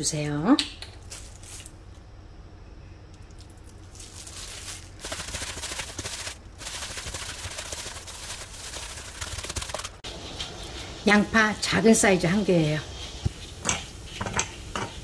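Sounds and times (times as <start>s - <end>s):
plastic glove crinkling: 1.0s - 1.8s, 3.4s - 10.0s
meat mixture squishing: 3.3s - 10.0s.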